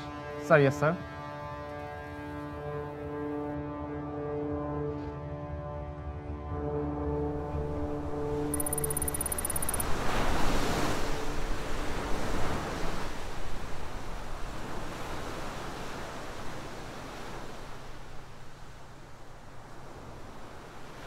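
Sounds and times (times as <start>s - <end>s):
wind: 0.0s - 21.0s
sea wash: 7.4s - 21.0s.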